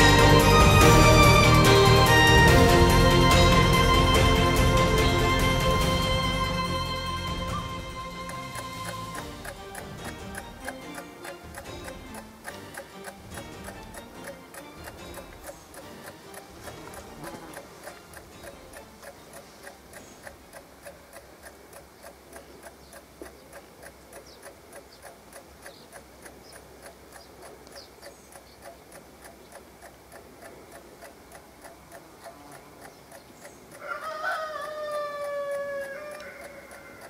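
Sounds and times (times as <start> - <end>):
drawn-out tone with overtones: 0.0 - 18.7
alarm clock ticking: 0.0 - 37.0.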